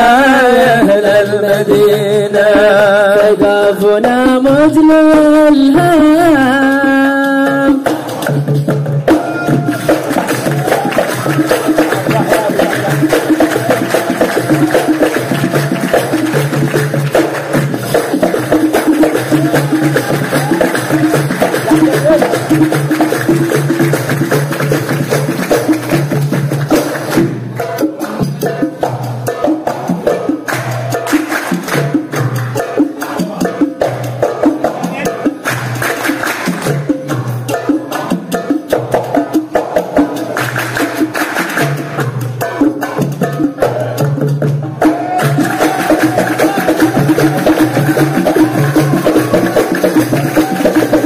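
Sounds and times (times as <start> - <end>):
hand drums playing rhythm: 0.0 - 51.0
hand clapping: 9.1 - 28.8, 29.7 - 34.4, 35.3 - 37.3, 40.1 - 43.0, 45.0 - 51.0.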